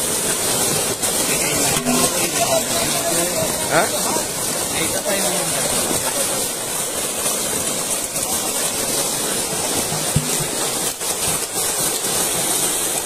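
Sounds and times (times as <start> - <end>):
fish splashing in shallow water: 0.0 - 13.0.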